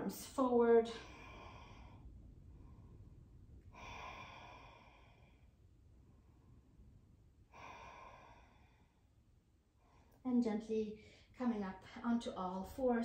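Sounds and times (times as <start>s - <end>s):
faint sighing breaths: 0.9s - 6.8s, 7.4s - 10.2s.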